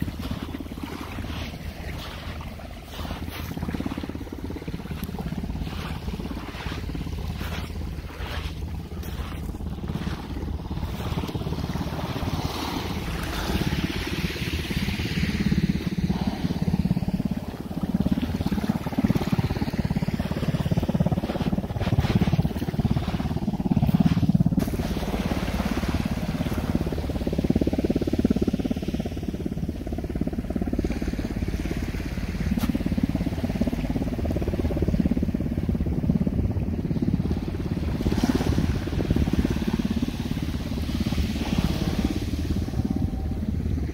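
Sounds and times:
water rushing: 0:00.0 - 0:15.4
boat motor running: 0:00.0 - 0:29.8, 0:36.9 - 0:43.9
wind noise: 0:00.0 - 0:43.9.

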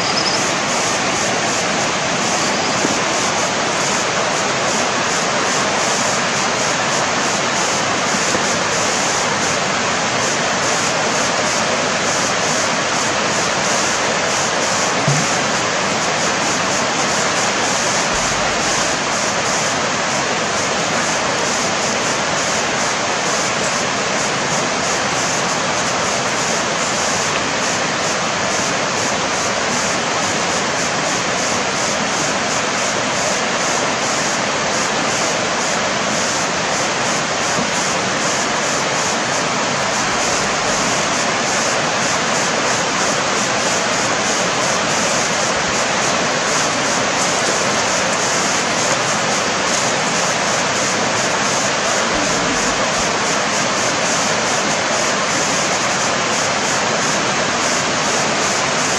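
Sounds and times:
flowing water rushing: 0:00.0 - 0:58.9.

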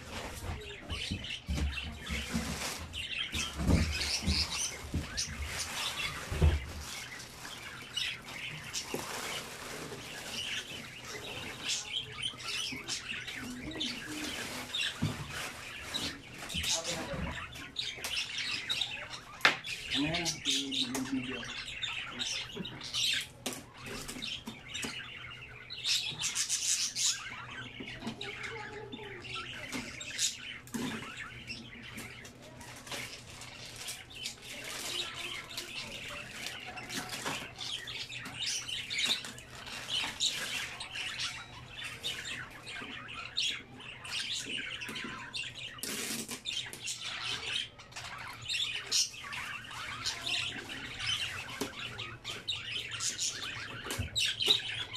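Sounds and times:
plastic wrapping crinkling: 0:02.1 - 0:03.9, 0:04.6 - 0:11.9, 0:13.9 - 0:17.0, 0:32.4 - 0:38.0.

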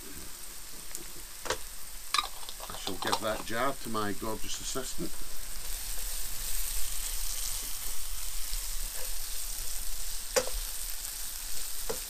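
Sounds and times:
onions sizzling in a frying pan: 0:00.0 - 0:12.0
wooden spoon stirring: 0:02.2 - 0:03.6.

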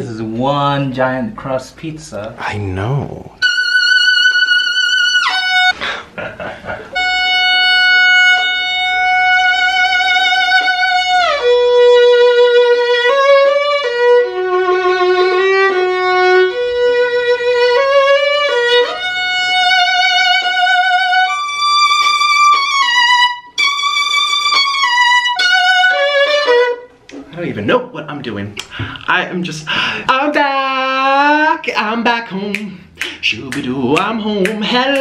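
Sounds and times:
violin melody with vibrato: 0:03.4 - 0:05.8, 0:06.9 - 0:27.0.

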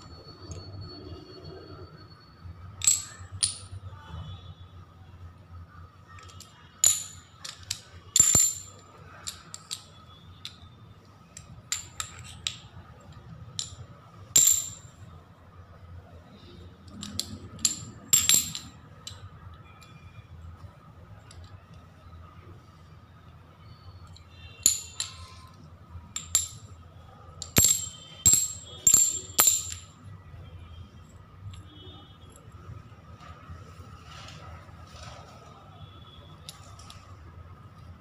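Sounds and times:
ceramic tiles clinking: 0:02.7 - 0:03.9, 0:06.1 - 0:10.8, 0:11.4 - 0:15.0, 0:16.4 - 0:20.0, 0:24.0 - 0:30.1, 0:36.4 - 0:37.1.

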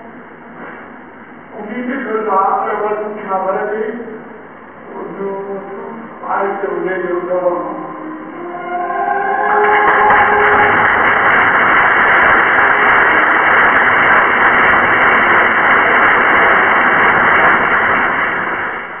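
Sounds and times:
strong wind rushing: 0:07.4 - 0:19.0.

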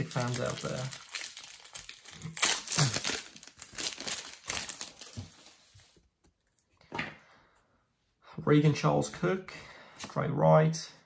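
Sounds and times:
plastic wrapper tearing and crinkling: 0:00.0 - 0:05.6.

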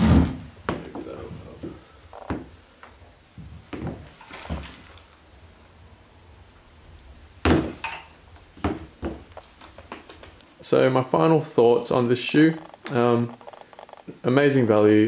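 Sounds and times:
shoes tapping on hard floor: 0:08.6 - 0:10.4.

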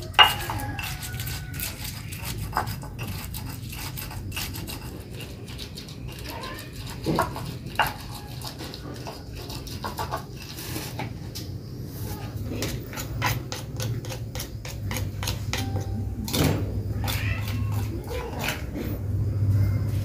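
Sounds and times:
stone pestle grinding in mortar: 0:00.0 - 0:11.2, 0:12.3 - 0:19.0
steady low hum: 0:14.0 - 0:17.0.

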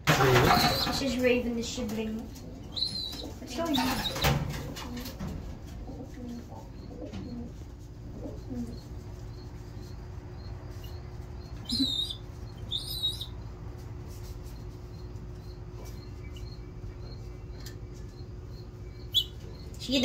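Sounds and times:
steady low hum: 0:00.0 - 0:20.0
pigeon cooing: 0:00.1 - 0:01.2, 0:02.3 - 0:13.4
pigeon high squeaky calls: 0:00.2 - 0:01.0, 0:02.6 - 0:05.1, 0:08.2 - 0:13.4, 0:18.5 - 0:20.0.

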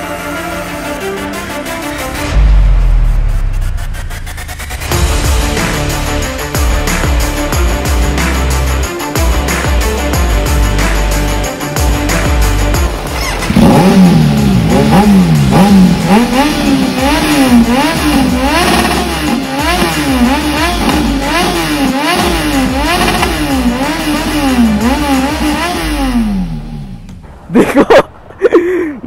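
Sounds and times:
motorcycle engine revving: 0:12.9 - 0:27.2.

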